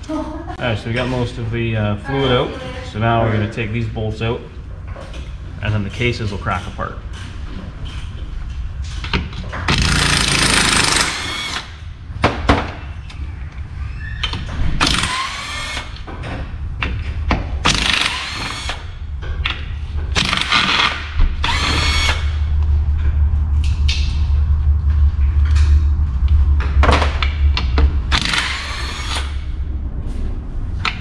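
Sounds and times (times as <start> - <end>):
cordless power tool spinning: 20.2 - 22.3.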